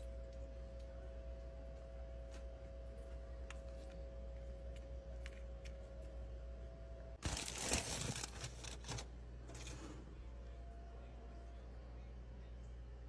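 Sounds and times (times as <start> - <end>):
faint steady hum: 0.0 - 13.0
rustling and crinkling: 7.2 - 10.1.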